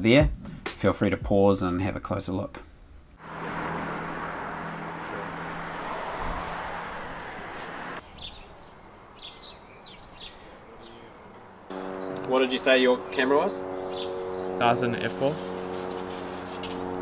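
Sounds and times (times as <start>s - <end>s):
rushing noise with low hum: 3.2s - 8.0s
small birds chirping: 5.6s - 17.0s.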